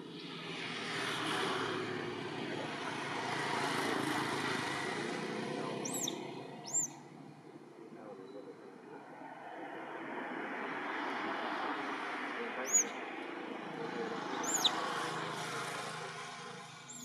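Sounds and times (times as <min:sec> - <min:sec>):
distant traffic engine noise: 0:00.0 - 0:17.0
high bird chirps: 0:05.8 - 0:07.0, 0:12.7 - 0:12.9, 0:14.4 - 0:14.8.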